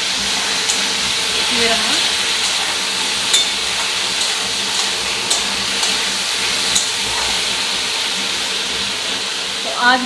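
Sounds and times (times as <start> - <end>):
potatoes frying: 0.0 - 10.0
range hood fan hissing: 0.0 - 10.0
metal spatula scraping a pan: 0.3 - 7.6.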